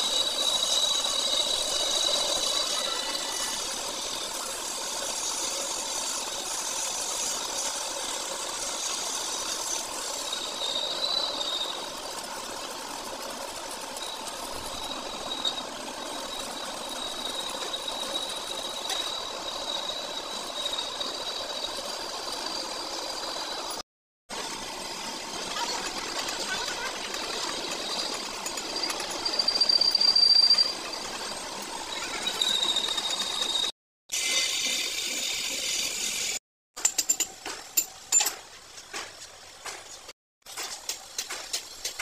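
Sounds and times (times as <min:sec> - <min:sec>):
thin high tone: 0:25.3 - 0:33.7.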